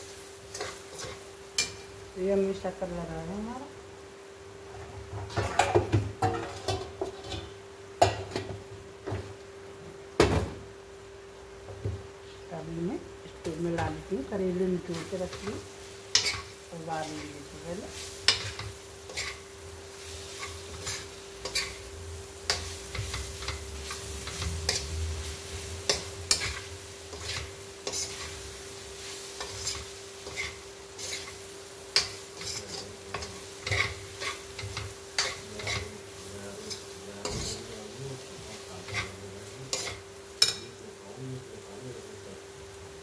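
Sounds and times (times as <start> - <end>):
faint frying sizzle: 0.0 - 43.0
spatula scraping a pan: 0.5 - 1.8, 14.9 - 21.9, 22.5 - 40.7.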